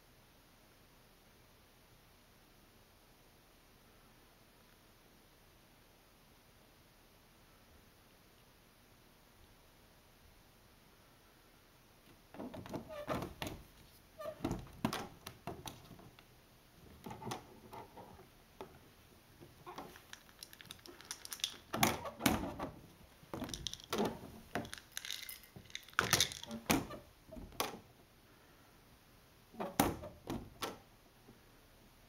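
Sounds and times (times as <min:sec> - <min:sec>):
kibble rattling in plastic scoop: 0:19.7 - 0:21.8, 0:23.4 - 0:26.7
plastic pet door flap clacking: 0:21.3 - 0:22.8, 0:26.0 - 0:27.8.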